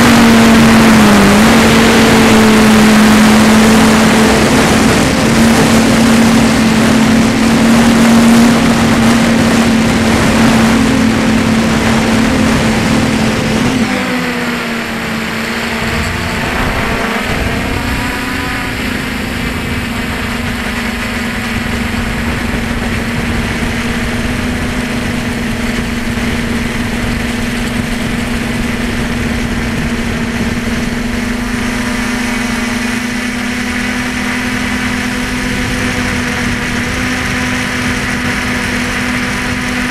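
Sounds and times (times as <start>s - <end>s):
drone propellers humming: 0.0s - 39.9s
wind rushing: 14.4s - 36.9s.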